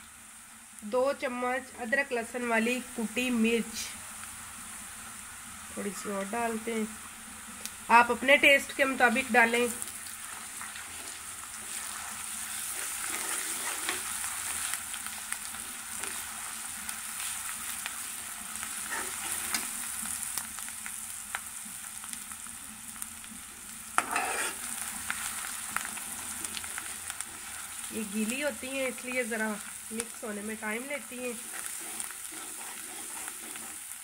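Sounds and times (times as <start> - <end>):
onions sizzling in oil: 0.0 - 34.0
metal spatula scraping pan: 10.9 - 14.1, 24.0 - 24.7, 31.3 - 33.9.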